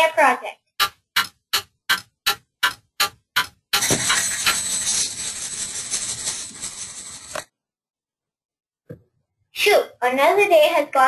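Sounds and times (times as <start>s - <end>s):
clock ticking: 0.6s - 4.6s.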